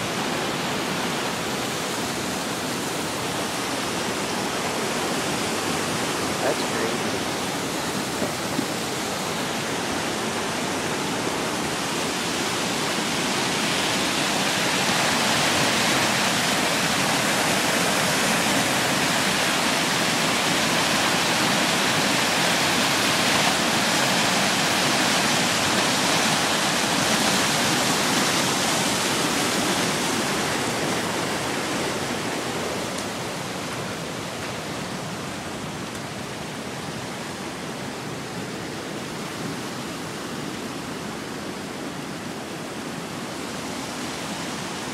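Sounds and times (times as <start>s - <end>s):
water rushing over spillway: 0.0s - 44.9s.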